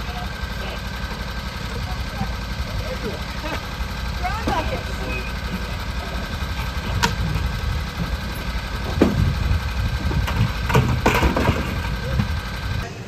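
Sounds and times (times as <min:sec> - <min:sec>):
vehicle engine idling: 0:00.0 - 0:13.0
plastic buckets knocking: 0:10.1 - 0:12.3.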